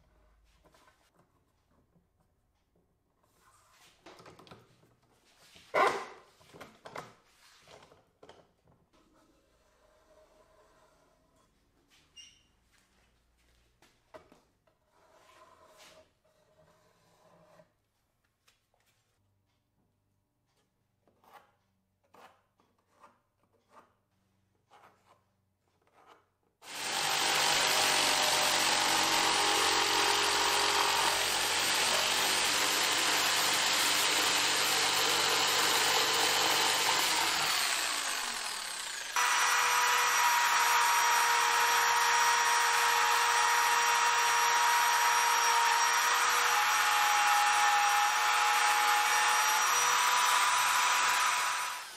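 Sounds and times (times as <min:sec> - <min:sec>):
faint scrapes: 0:14.8 - 0:17.8
jigsaw sawing a board: 0:26.0 - 0:51.9
trim router whining: 0:26.7 - 0:51.9.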